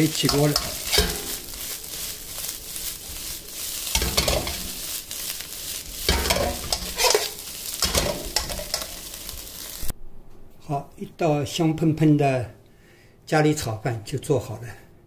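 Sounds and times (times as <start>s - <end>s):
metal ladle scraping wok: 0.0s - 9.9s
rice sizzling in wok: 0.0s - 9.9s.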